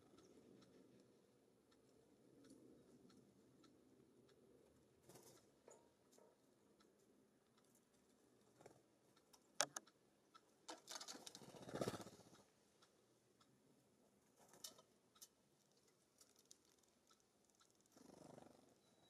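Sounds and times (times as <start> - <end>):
beaks and claws tapping metal mesh: 5.0 - 6.6, 10.6 - 12.5, 14.3 - 18.4
bird wings fluttering: 10.9 - 12.4.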